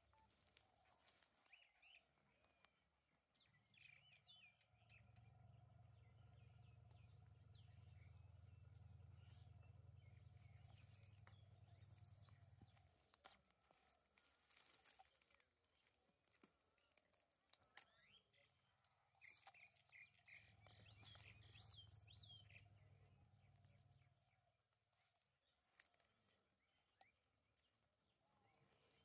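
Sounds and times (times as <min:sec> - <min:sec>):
faint low hum: 0:00.0 - 0:15.0, 0:16.2 - 0:29.0
faint bird chirps: 0:16.9 - 0:25.1.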